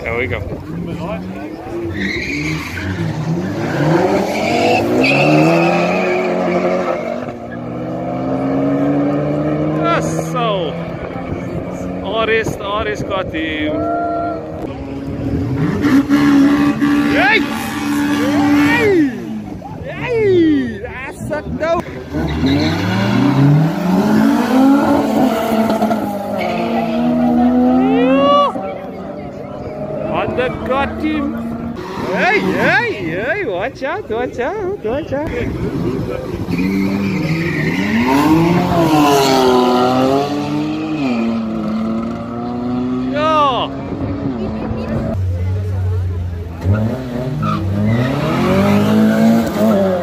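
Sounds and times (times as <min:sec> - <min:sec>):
car engines revving: 0:00.0 - 0:50.0
tyre squeal: 0:01.8 - 0:07.6, 0:22.2 - 0:23.4, 0:36.5 - 0:39.2.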